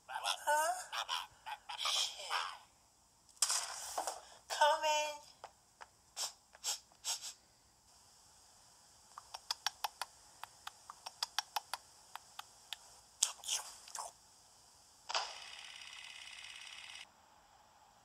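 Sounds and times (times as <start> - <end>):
small animal nibbling and gnawing: 9.1 - 14.1.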